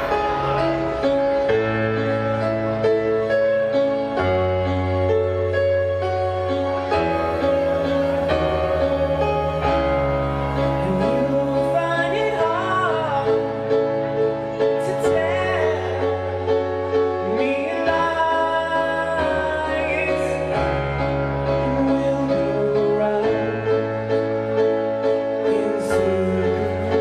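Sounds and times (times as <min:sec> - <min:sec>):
keyboard sustained chords: 0:00.0 - 0:27.0
low bass line: 0:00.0 - 0:27.0
man singing: 0:10.5 - 0:24.3, 0:25.2 - 0:27.0.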